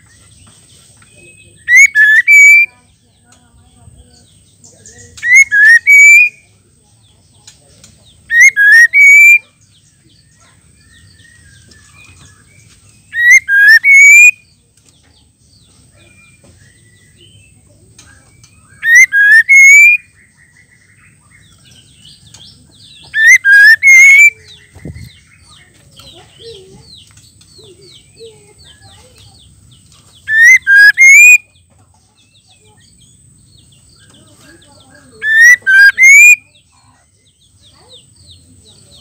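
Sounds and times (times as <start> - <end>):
soft bird twittering: 0.0 - 39.0
bird whistling rising notes: 1.7 - 2.7, 5.2 - 6.3, 8.3 - 9.4, 13.1 - 14.4, 18.7 - 20.0, 23.1 - 24.4, 30.3 - 31.4, 35.2 - 36.4.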